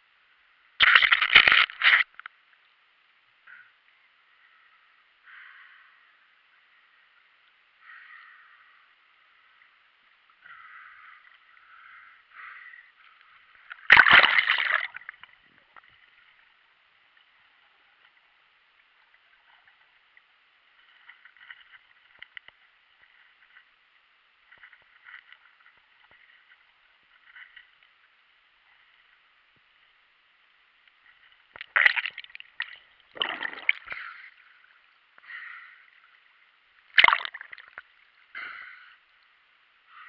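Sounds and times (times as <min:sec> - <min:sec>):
faint underwater clicks and crackles: 0:00.6 - 0:40.0
loud splash: 0:13.9 - 0:15.0, 0:33.1 - 0:34.0, 0:37.0 - 0:37.6
muffled water sloshing: 0:31.5 - 0:34.3.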